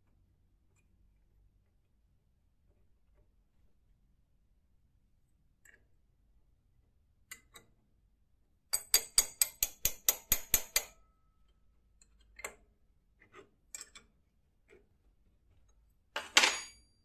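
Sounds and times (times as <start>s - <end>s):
spanner clicking on a nut: 8.7s - 11.0s, 13.2s - 14.1s.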